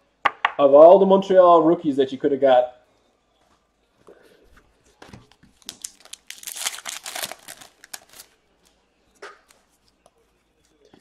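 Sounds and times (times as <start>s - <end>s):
plastic packaging crinkling: 5.3s - 8.4s.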